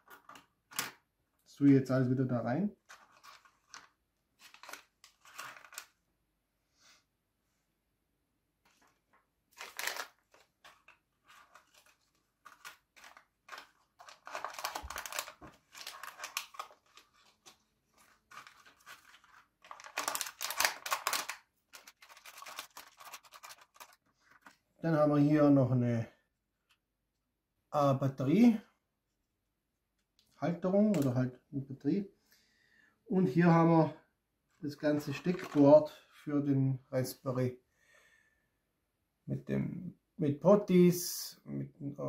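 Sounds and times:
plastic bags crinkling: 2.9s - 6.0s, 9.5s - 24.6s, 34.9s - 35.7s.

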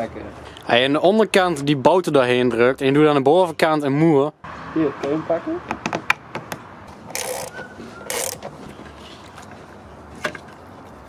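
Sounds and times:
plastic part rasping: 7.0s - 8.9s.

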